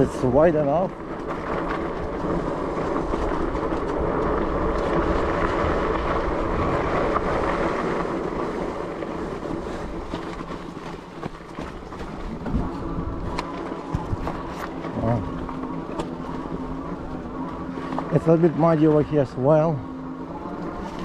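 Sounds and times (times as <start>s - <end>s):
wind buffeting the microphone: 0.0s - 15.5s
bike tires rolling on dirt: 0.0s - 21.0s.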